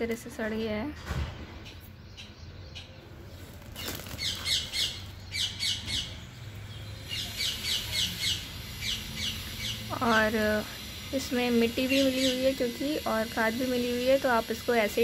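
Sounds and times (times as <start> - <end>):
bird calling: 1.7 - 6.2.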